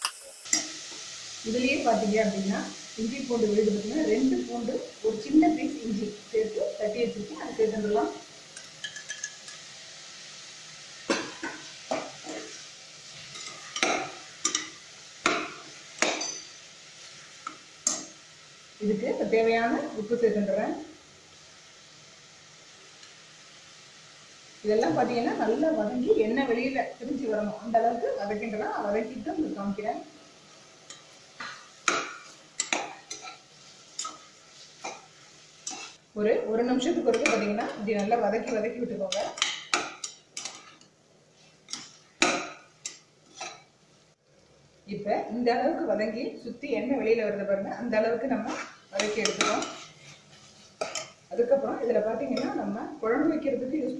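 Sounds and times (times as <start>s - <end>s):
onions and tomatoes sauteing: 0.0s - 53.9s
metal ladle clinking on a pot: 8.6s - 9.6s.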